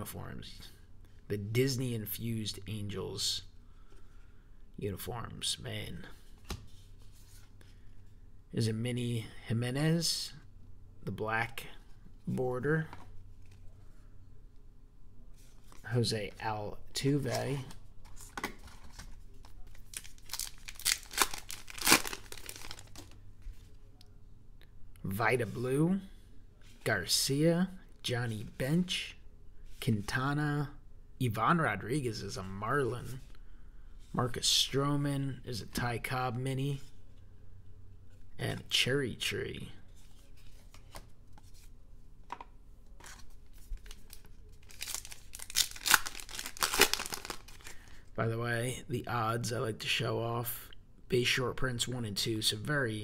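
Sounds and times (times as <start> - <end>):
trading cards clicking and rustling: 17.1 - 23.2, 40.4 - 47.8
foil wrapper crinkling and ripping: 19.8 - 23.2, 43.8 - 47.9.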